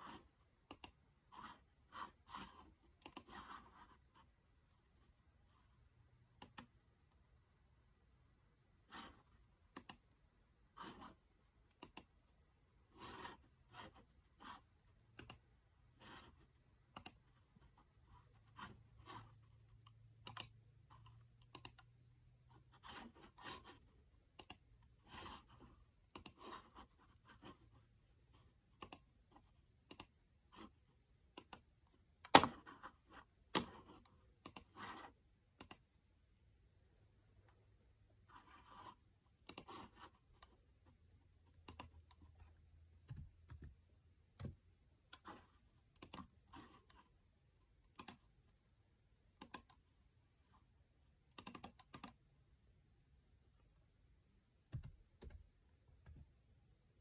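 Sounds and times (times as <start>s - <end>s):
computer mouse clicks: 0.1s - 3.7s, 6.3s - 6.8s, 9.0s - 10.1s, 10.9s - 12.2s, 15.1s - 15.4s, 16.9s - 17.3s, 19.8s - 21.9s, 24.3s - 24.7s, 26.1s - 26.7s, 28.8s - 30.2s, 31.3s - 32.6s, 33.5s - 35.0s, 35.6s - 35.9s, 38.5s - 40.6s, 41.6s - 47.0s, 47.9s - 48.3s, 49.4s - 49.8s, 51.3s - 52.2s, 54.7s - 56.3s.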